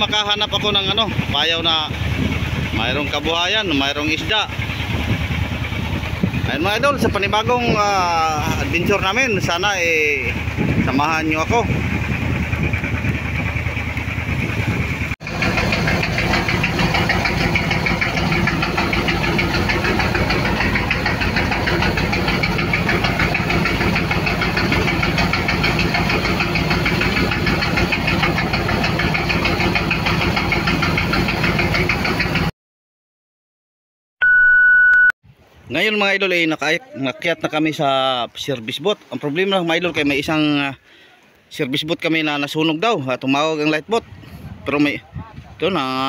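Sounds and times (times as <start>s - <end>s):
boat engine knocking: 0.0s - 32.5s.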